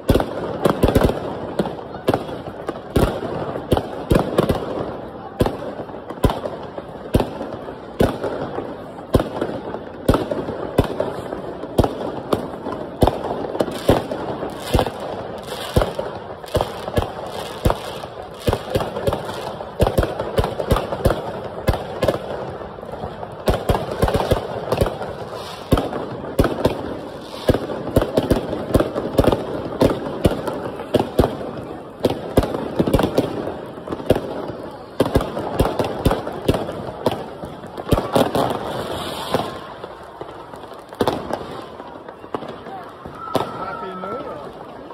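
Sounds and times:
fireworks bangs: 0.0 - 44.9.

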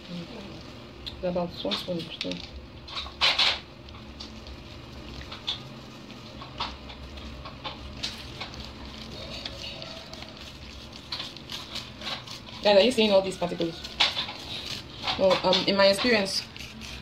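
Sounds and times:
plastic spoon scraping a mesh sieve: 9.0 - 17.0.

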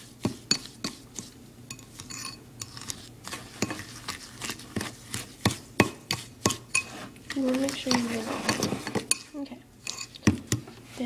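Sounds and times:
fork clinking against ceramic bowl: 1.7 - 2.8, 9.1 - 10.2.

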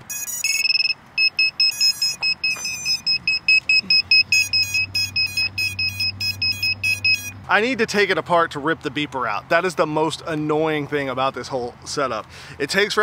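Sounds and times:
drone buzzer beeping: 0.0 - 7.4
high chirps: 0.0 - 7.4.

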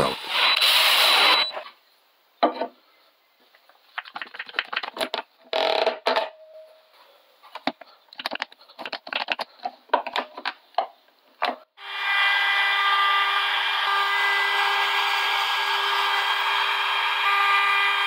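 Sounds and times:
wooden pieces knocking: 3.6 - 6.4, 7.5 - 11.7.

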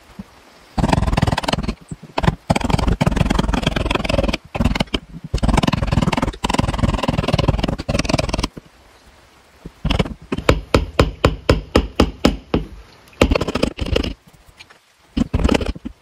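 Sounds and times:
wood chisel scraping wood: 0.8 - 8.5, 9.7 - 10.5, 13.2 - 14.2, 15.2 - 16.0.

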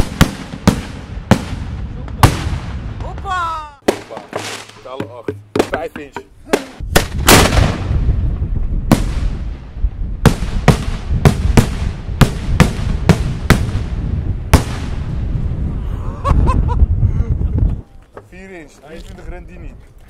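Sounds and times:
fireworks bangs: 0.0 - 5.9, 6.5 - 15.6.

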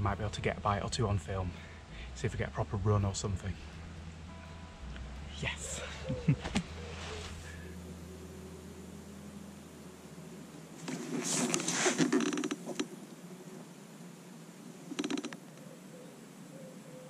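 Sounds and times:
handling rustling and scraping: 6.4 - 7.7, 10.8 - 12.8.

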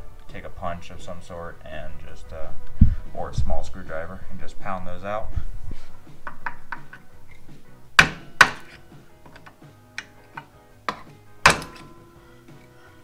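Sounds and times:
background music: 0.0 - 13.0
hammer striking metal: 8.0 - 12.1.

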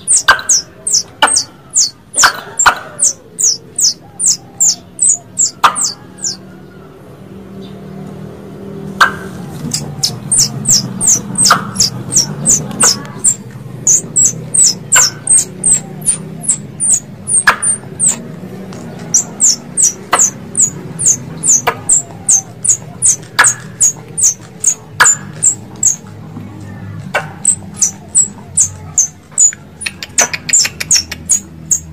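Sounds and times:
squirrel chipping calls: 0.0 - 6.4, 8.9 - 31.9
steady low hum: 8.3 - 31.9.

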